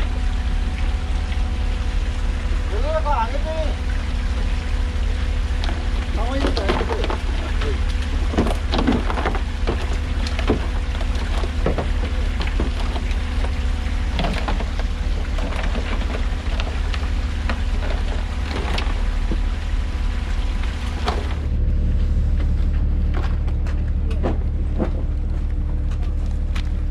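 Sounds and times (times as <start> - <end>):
low machine hum: 0.0 - 26.9.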